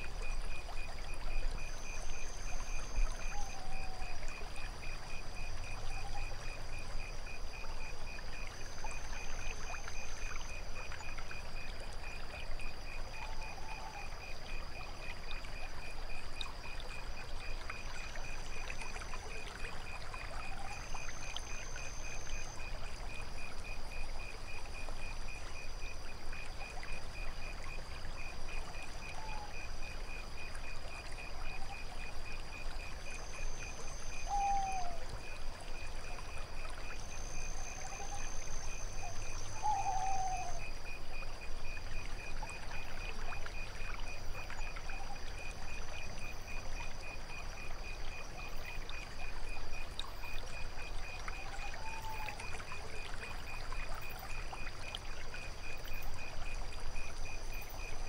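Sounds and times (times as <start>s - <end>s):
cricket chorus: 0.0s - 58.0s
water trickling and lapping: 0.0s - 58.0s
high insect trill: 27.9s - 58.0s.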